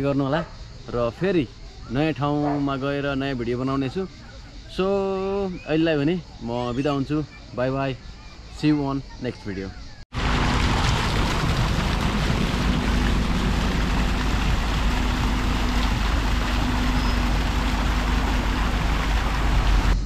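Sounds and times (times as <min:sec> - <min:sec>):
traffic hum: 0:06.2 - 0:20.0
fountain water splashing: 0:10.2 - 0:20.0
low rumble: 0:10.2 - 0:20.0.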